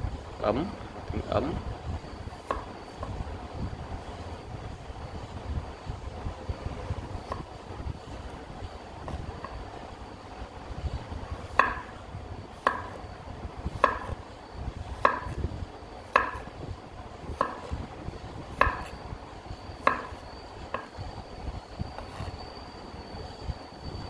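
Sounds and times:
low steady rumble: 0:00.0 - 0:24.0
knife striking wooden board: 0:02.4 - 0:02.7, 0:11.5 - 0:11.9, 0:12.6 - 0:13.0, 0:13.8 - 0:14.2, 0:15.0 - 0:15.4, 0:16.1 - 0:16.5, 0:17.4 - 0:17.7, 0:18.6 - 0:18.9, 0:19.8 - 0:20.9.

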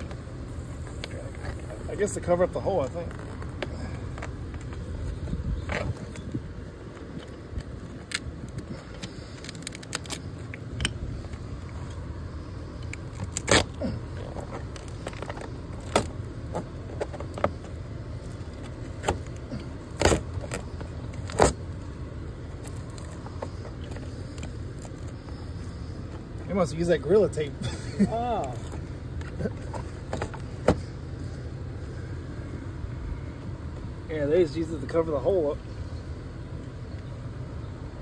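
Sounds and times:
steady low rumble: 0:00.0 - 0:38.0
tape peeling crackles and snaps: 0:02.8 - 0:12.0, 0:12.8 - 0:21.7, 0:22.5 - 0:25.4.

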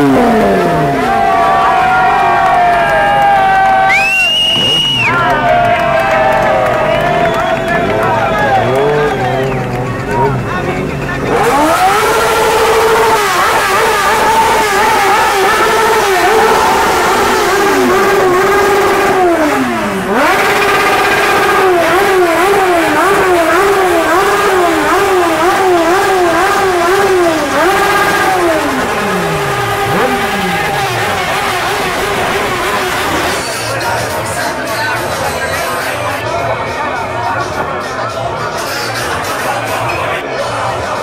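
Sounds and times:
motorcycle engine revving: 0:00.0 - 0:02.2, 0:04.4 - 0:34.6.

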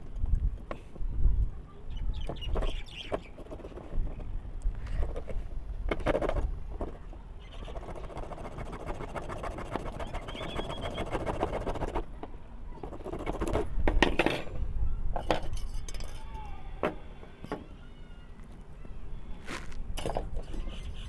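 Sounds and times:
screwdriver rasping on metal can: 0:07.6 - 0:12.0.

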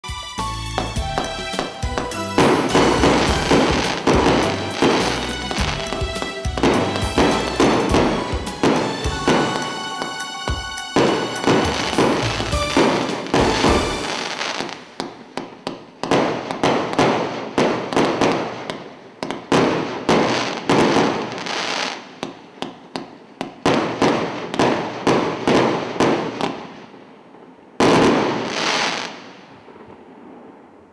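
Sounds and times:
fireworks shots: 0:00.8 - 0:22.2, 0:27.8 - 0:30.6.

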